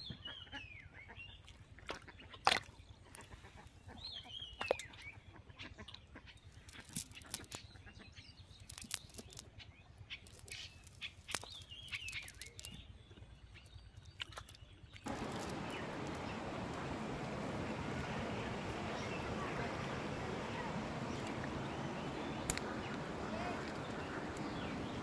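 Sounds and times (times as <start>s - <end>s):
bird chirps: 15.1s - 25.0s
steady outdoor noise: 15.1s - 25.0s.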